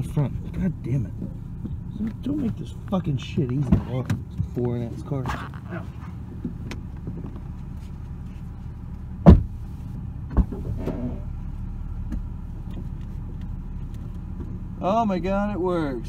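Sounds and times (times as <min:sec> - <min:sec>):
steady low hum: 0:00.0 - 0:16.0
car door slamming: 0:09.2 - 0:09.6.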